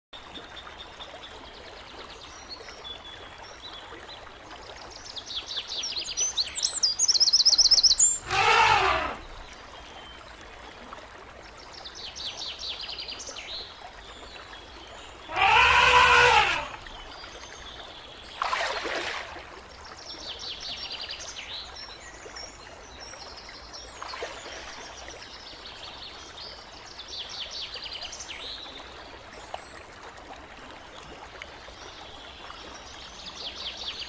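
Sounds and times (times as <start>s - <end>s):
elephant trumpeting: 8.2s - 9.3s, 15.3s - 16.8s.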